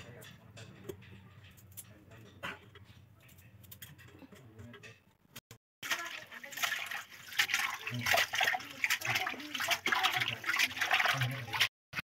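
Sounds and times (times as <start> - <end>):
water sloshing and splashing: 5.8 - 11.7.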